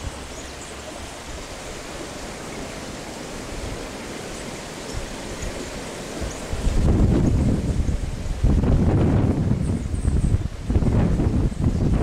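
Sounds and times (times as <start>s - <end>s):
wind rushing: 4.9s - 12.0s.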